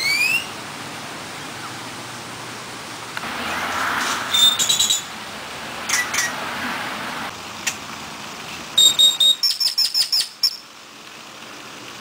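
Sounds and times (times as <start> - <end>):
high bird whistle: 0.0 - 0.5, 4.3 - 5.1, 8.8 - 10.6
birds calling: 0.0 - 0.6, 4.0 - 5.2, 8.5 - 10.7
sharp ticking bird notes: 4.4 - 5.1, 8.8 - 10.7.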